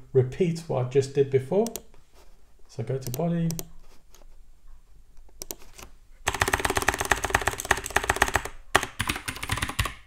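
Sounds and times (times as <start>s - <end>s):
typing on computer keyboard: 5.4s - 10.0s.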